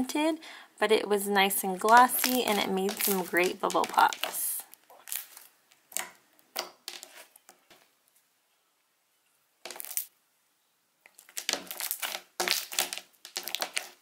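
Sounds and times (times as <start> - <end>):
slime popping: 1.9 - 7.1, 9.7 - 10.1, 11.1 - 14.0.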